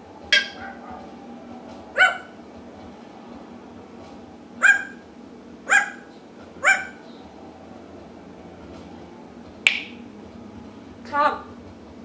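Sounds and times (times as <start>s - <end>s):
parrot imitating dog barks: 2.0s - 2.4s, 4.6s - 5.0s, 5.7s - 7.0s.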